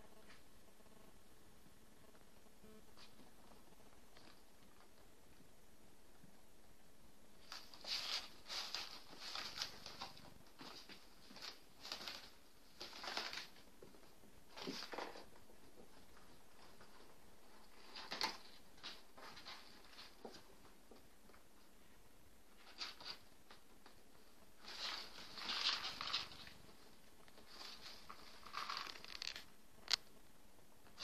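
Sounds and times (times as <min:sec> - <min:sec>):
rustling paper and cloth: 0:07.4 - 0:21.7, 0:22.5 - 0:30.0.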